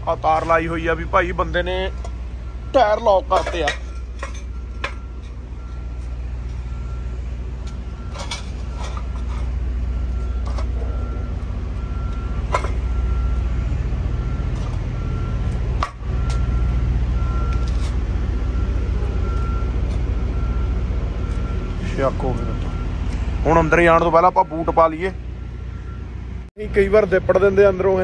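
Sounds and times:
truck idling low rumble: 0.0s - 28.0s
metal clanks: 1.9s - 2.3s, 2.9s - 6.8s, 7.6s - 11.1s, 12.1s - 13.0s, 15.4s - 16.5s.

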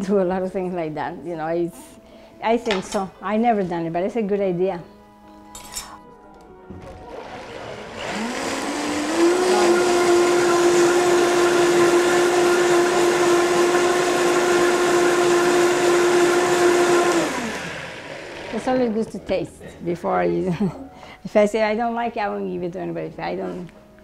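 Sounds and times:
blender motor running: 6.8s - 18.9s.

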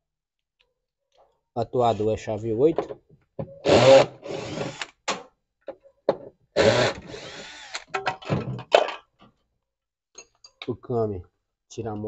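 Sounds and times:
cordless drill running: 3.7s - 4.9s, 6.6s - 7.8s.

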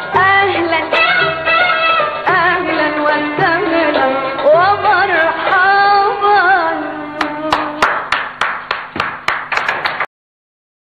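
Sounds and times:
woman singing: 0.0s - 8.0s
instrumental accompaniment: 0.0s - 10.0s.

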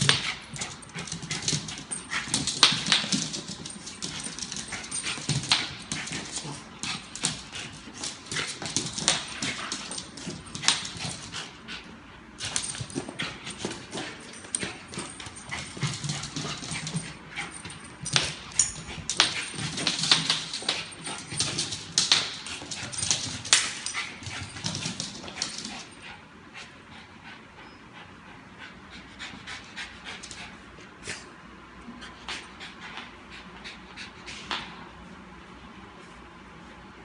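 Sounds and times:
dog claws clicking on floor: 0.0s - 11.8s, 12.4s - 26.1s.

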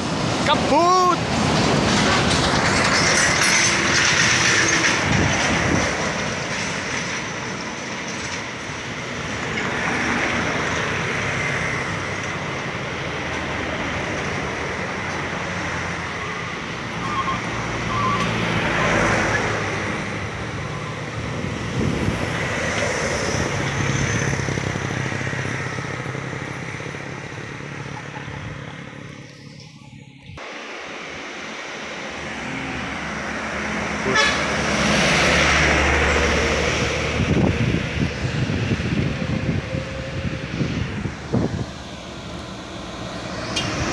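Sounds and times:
diesel trucks labouring uphill: 0.0s - 43.9s
truck horn toots: 34.0s - 34.6s.

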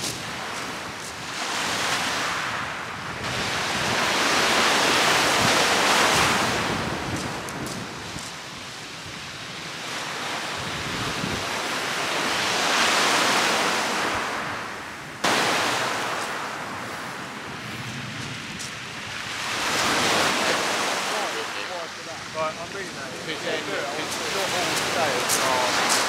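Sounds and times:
wind buffeting microphone: 0.0s - 12.7s, 13.5s - 21.0s
waves breaking on shingle beach: 0.0s - 26.0s.

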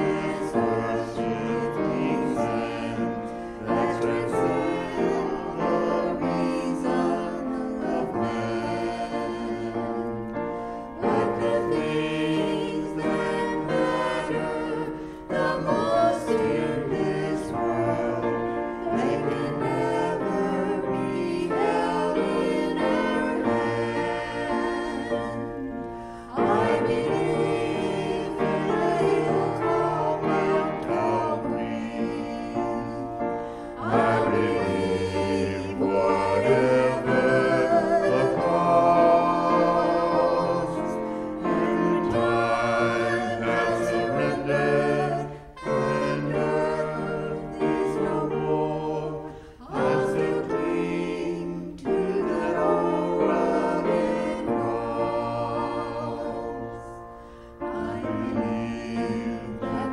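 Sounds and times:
vocal trio singing in harmony: 0.0s - 59.9s.

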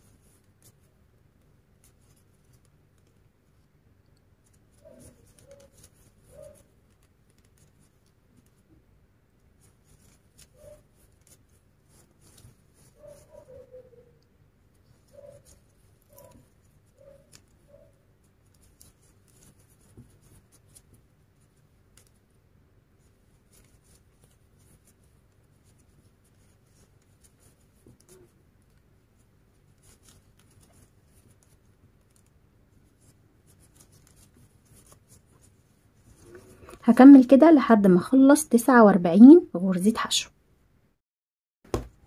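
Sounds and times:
crochet hook scratching and clicking: 0.0s - 8.8s, 9.4s - 22.4s, 23.0s - 36.8s.

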